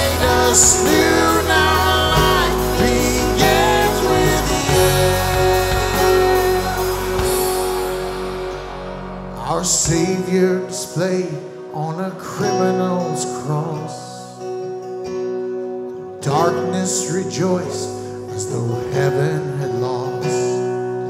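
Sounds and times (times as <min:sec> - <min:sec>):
worship band playing: 0:00.0 - 0:14.4
person singing: 0:00.0 - 0:14.5, 0:16.2 - 0:20.8
keyboard: 0:00.0 - 0:21.0
strummed acoustic guitar: 0:00.0 - 0:21.0.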